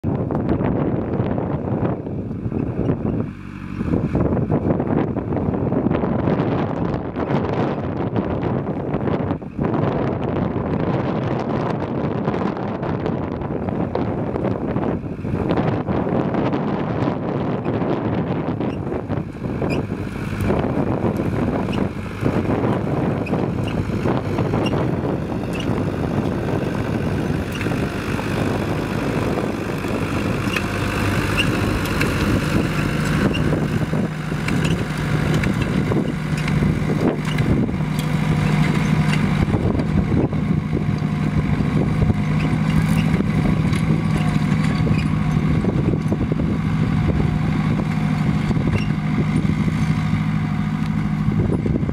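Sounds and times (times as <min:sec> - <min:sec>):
tractor diesel engine: 0:00.0 - 0:51.9
plough blade scraping soil: 0:21.2 - 0:40.0, 0:42.0 - 0:45.5.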